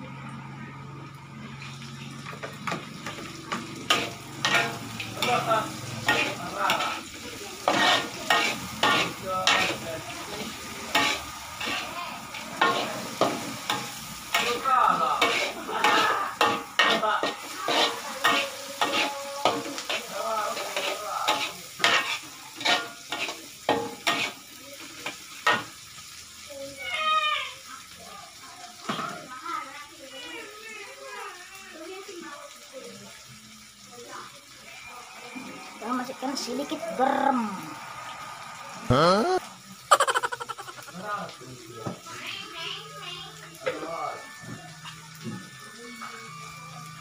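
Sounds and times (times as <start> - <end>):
food sizzling in hot oil: 0.1 - 47.0
metal spatula scraping a wok: 3.8 - 5.4, 6.0 - 14.6, 15.2 - 24.4.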